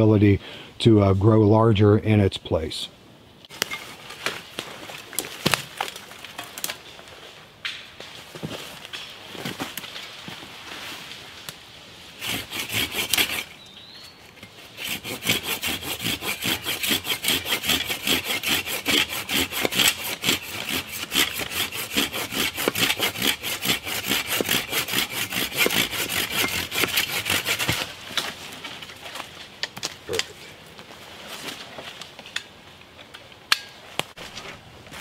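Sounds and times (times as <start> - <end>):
hand saw cutting sapling: 12.2 - 13.6, 14.4 - 28.4.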